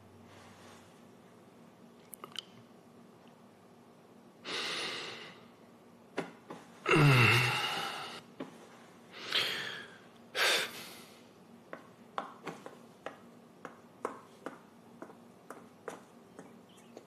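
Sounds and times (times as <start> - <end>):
man breathing heavily: 4.4 - 5.5, 6.8 - 8.3, 9.1 - 11.3
slipper footsteps on stairs: 11.7 - 17.0.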